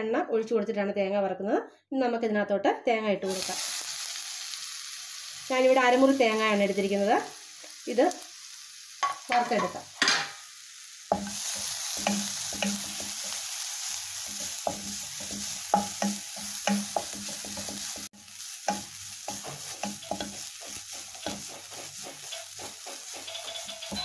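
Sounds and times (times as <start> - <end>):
pan hissing: 3.3 - 24.0
spatula scraping a pan: 11.1 - 24.0.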